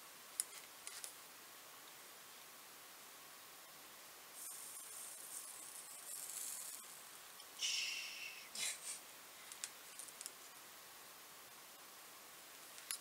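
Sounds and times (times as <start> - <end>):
solder flux sizzling: 3.7 - 13.0
small clicks: 9.5 - 10.4.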